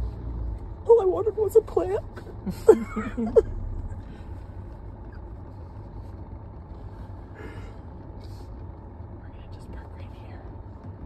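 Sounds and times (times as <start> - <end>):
car engine and road noise: 0.0 - 11.0.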